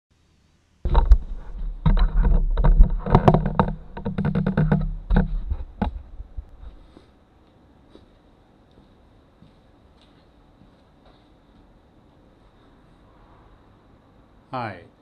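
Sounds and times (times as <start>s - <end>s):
knocks and rubbing clicks: 0.9s - 6.7s
camera handling rumble: 0.9s - 6.8s.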